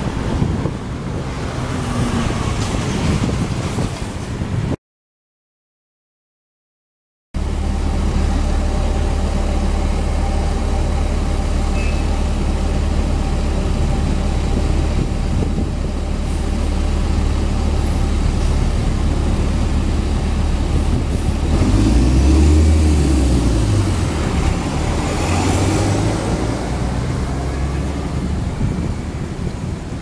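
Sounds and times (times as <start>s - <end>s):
heavy engine idling: 7.4s - 29.8s.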